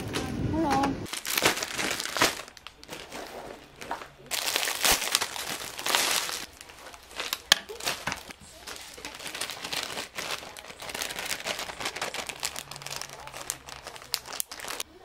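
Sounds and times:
plastic bag crinkling: 0:00.0 - 0:14.9.

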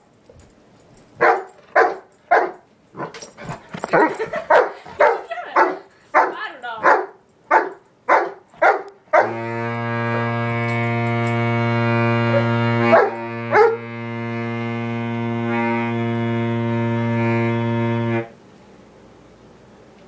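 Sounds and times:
dog barking: 0:01.2 - 0:03.2, 0:03.9 - 0:09.3, 0:12.9 - 0:13.8
saxophone long low note: 0:09.2 - 0:18.4.

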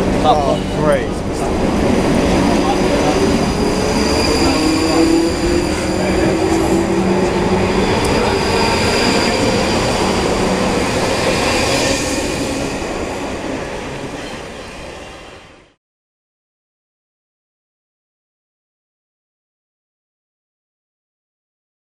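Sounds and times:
steady whine: 0:00.0 - 0:14.1
train rumbling on rails: 0:00.0 - 0:15.8.

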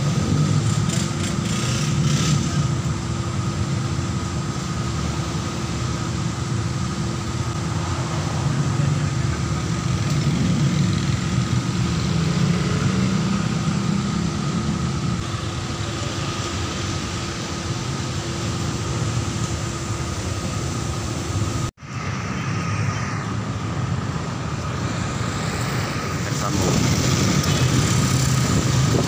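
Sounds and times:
scooter engine running: 0:00.0 - 0:03.0, 0:25.0 - 0:29.0
passing cars and motorcycles: 0:00.0 - 0:29.0
wind and road noise: 0:00.0 - 0:29.0.

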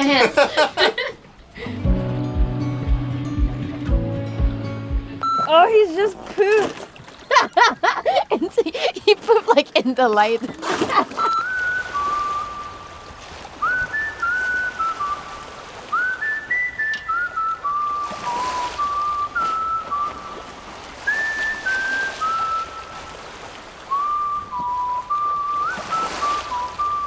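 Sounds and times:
whistled tune: 0:11.1 - 0:23.2, 0:23.9 - 0:27.0.

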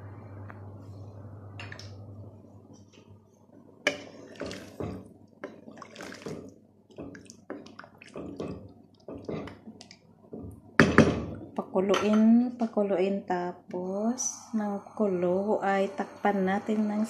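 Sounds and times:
steady low hum: 0:00.0 - 0:05.5, 0:10.1 - 0:17.0
spoon stirring food in a pot: 0:03.8 - 0:10.6.

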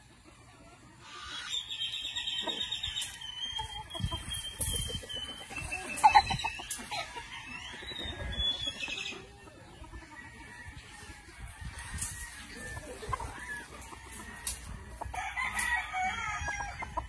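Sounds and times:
rooster clucking: 0:00.0 - 0:17.0
high chirping: 0:01.1 - 0:09.5.

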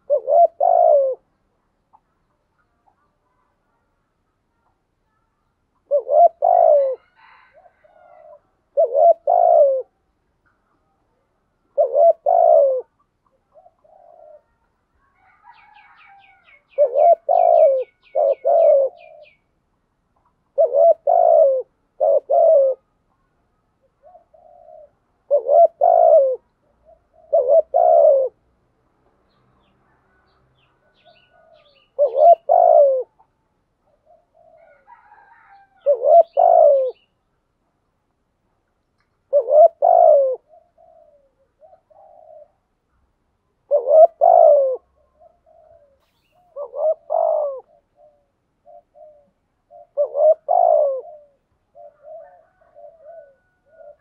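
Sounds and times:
dove cooing: 0:00.0 - 0:02.1, 0:05.8 - 0:10.1, 0:11.6 - 0:19.5, 0:20.2 - 0:22.9, 0:23.8 - 0:28.4, 0:30.1 - 0:37.1, 0:39.2 - 0:42.8, 0:43.6 - 0:54.0.

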